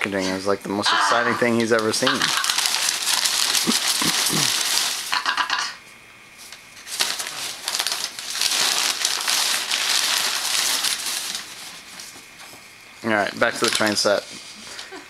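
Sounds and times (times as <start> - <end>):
packing paper crinkling: 1.5 - 5.3, 6.4 - 12.6, 13.3 - 15.0.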